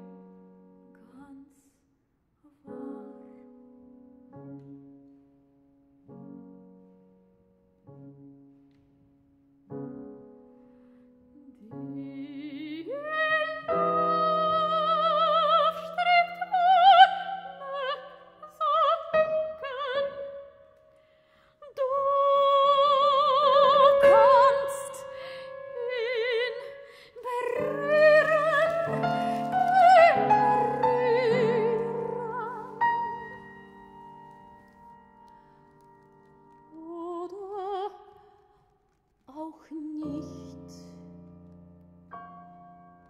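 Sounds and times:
soprano singing with vibrato: 2.4s - 3.6s, 11.4s - 20.6s, 21.6s - 34.4s, 36.7s - 38.4s, 39.3s - 41.0s
piano chords: 2.5s - 38.0s, 39.8s - 43.0s.

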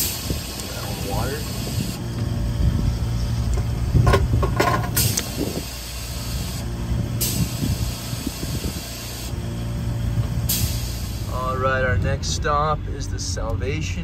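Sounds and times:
air hose hissing: 0.0s - 2.1s, 4.7s - 9.4s, 10.2s - 11.5s
steady low hum: 0.0s - 14.0s.

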